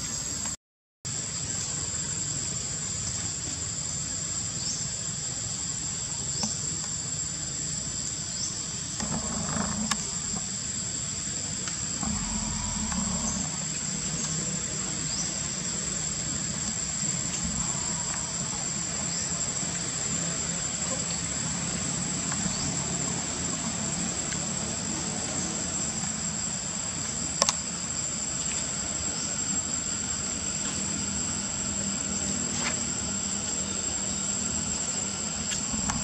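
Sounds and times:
insect chorus shrilling: 1.2 - 36.0
short rising insect chirps: 11.9 - 16.4.

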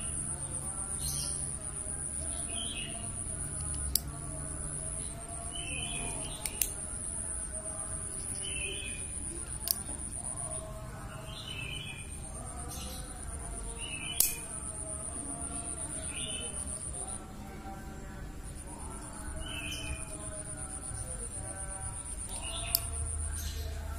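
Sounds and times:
birds chirping: 0.0 - 23.9
high-pitched insect hum: 0.0 - 23.9
knife blade clicking: 3.6 - 4.1, 6.3 - 6.8, 14.2 - 14.6, 22.6 - 23.0.

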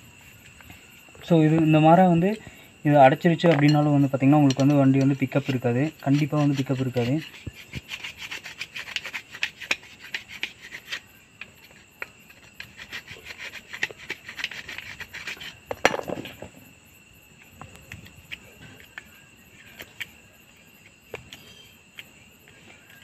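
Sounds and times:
screwdriver scraping metal tube: 11.7 - 15.6.

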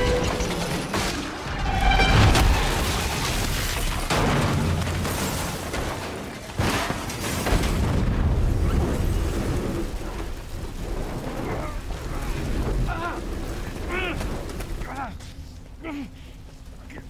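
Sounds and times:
heavy crash impact: 0.0 - 9.8
low rumble of burning car: 7.3 - 17.0.

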